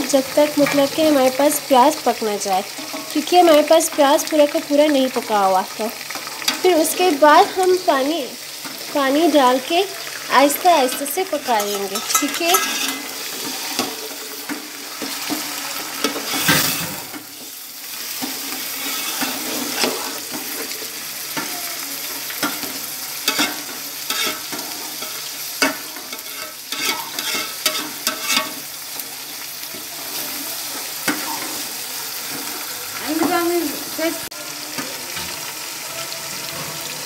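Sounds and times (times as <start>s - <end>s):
meat and onions sizzling: 0.0s - 37.0s
metal spoon scraping pot: 10.6s - 14.0s, 18.6s - 20.3s, 23.2s - 28.6s.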